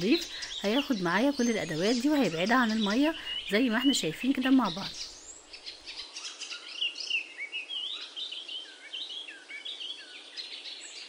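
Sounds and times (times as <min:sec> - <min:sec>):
faint hiss: 0:00.0 - 0:11.0
small birds chirping: 0:00.0 - 0:11.0.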